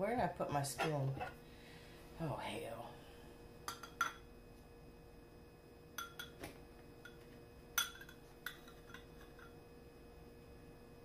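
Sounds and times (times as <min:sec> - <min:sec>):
metal spoon clinking glass bowl: 0:06.0 - 0:06.4, 0:07.8 - 0:09.6.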